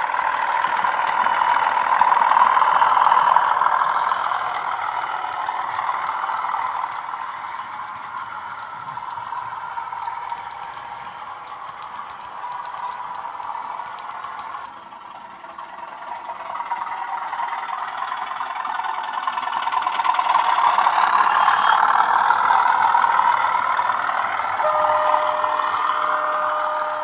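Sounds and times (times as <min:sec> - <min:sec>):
model train diesel engine sound: 0:00.0 - 0:27.0
steady tone: 0:21.2 - 0:27.0.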